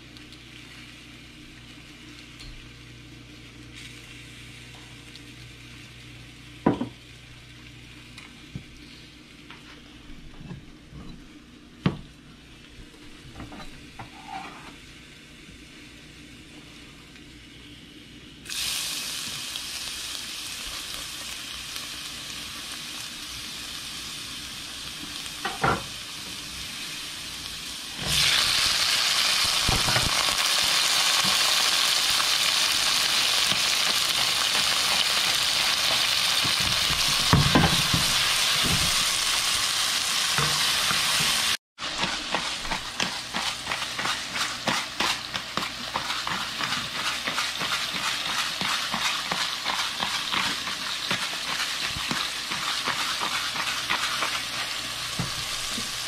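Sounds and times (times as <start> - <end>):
food sizzling in a frying pan: 0.0 - 10.0, 13.2 - 56.0
tomatoes crackling and popping: 28.1 - 56.0.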